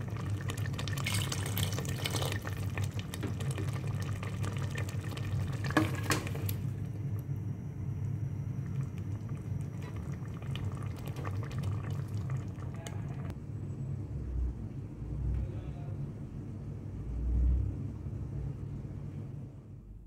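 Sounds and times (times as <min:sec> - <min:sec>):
gravy bubbling and popping: 0:00.0 - 0:07.3, 0:08.0 - 0:13.3
steady low hum: 0:00.0 - 0:20.0.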